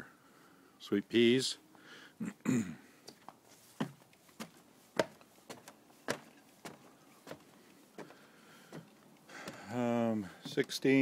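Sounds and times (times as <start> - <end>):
footsteps on wooden boards: 3.1 - 11.0.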